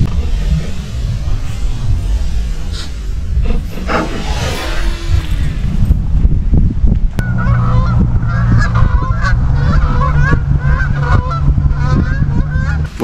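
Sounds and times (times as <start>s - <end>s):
steady low hum: 0.0s - 13.0s
geese honking: 7.2s - 12.9s.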